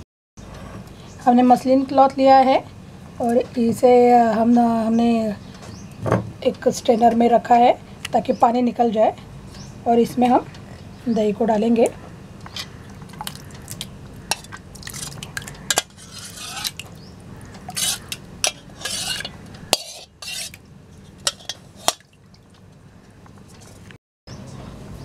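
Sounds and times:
spoon scraping steel bowl: 0:14.3 - 0:16.8, 0:17.7 - 0:22.0.

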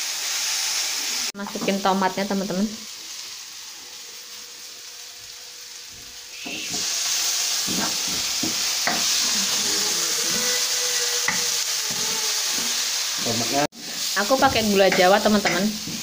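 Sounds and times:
tomatoes sizzling in hot oil: 0:00.0 - 0:16.0
wooden spatula knocking a pan: 0:07.6 - 0:09.1, 0:14.4 - 0:16.0.

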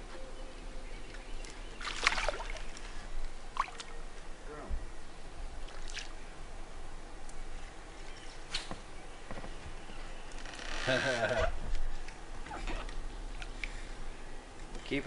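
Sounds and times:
fish splashing in water: 0:01.8 - 0:02.8.

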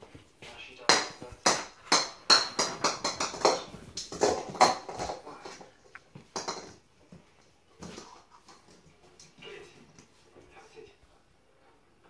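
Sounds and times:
plastic ball bouncing on floor: 0:00.8 - 0:09.4.

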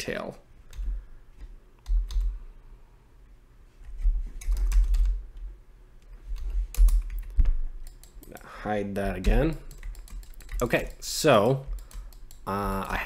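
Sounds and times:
computer keyboard keystrokes: 0:00.7 - 0:02.4, 0:04.4 - 0:05.2, 0:06.4 - 0:08.5, 0:09.2 - 0:13.0.

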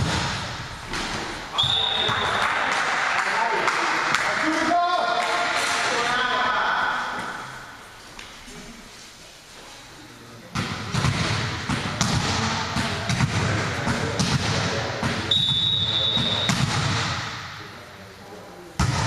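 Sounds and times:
ball bouncing on court floor: 0:00.0 - 0:02.5, 0:10.5 - 0:17.4, 0:18.8 - 0:19.0
referee whistle blast: 0:01.5 - 0:02.4, 0:15.3 - 0:16.6.

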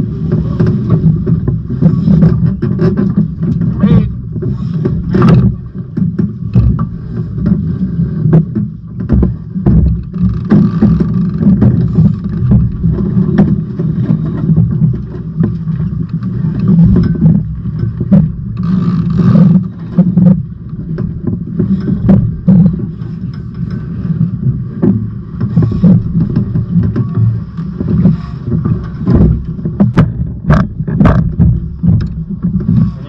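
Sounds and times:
scattered knocks: 0:08.4 - 0:13.6, 0:24.8 - 0:32.9.

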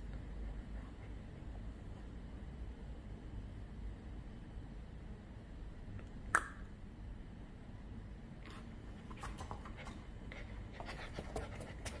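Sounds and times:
puppy claws tapping and scraping: 0:10.8 - 0:12.0.

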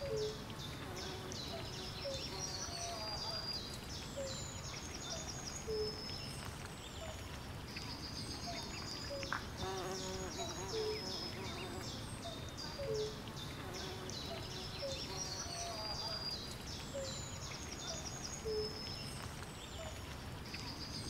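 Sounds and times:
small birds chirping and trilling: 0:00.0 - 0:21.0.

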